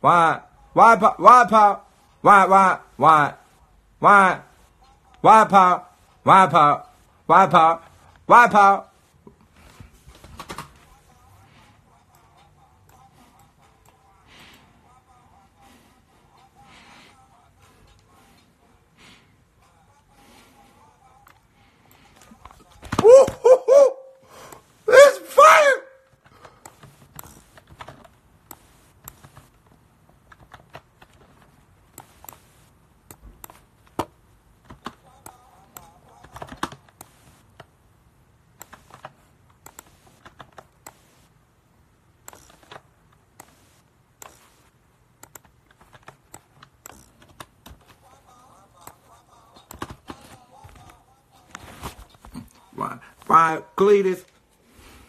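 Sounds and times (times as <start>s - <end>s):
person speaking: 0.0s - 18.8s, 19.5s - 26.1s, 34.7s - 37.5s, 45.8s - 55.0s
keyboard typing: 26.2s - 37.8s, 38.6s - 41.3s, 42.2s - 51.0s.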